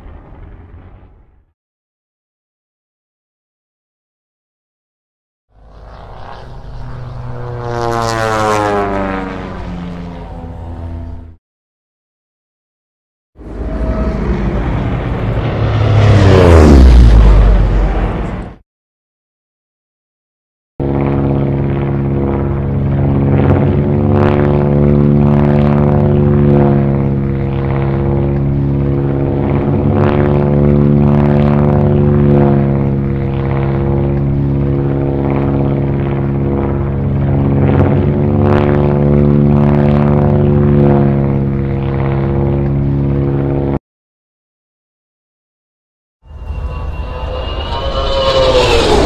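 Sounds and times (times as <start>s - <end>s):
propeller plane engine droning: 0.0s - 1.5s, 5.5s - 11.4s, 13.4s - 18.6s, 20.8s - 43.8s, 46.2s - 49.0s.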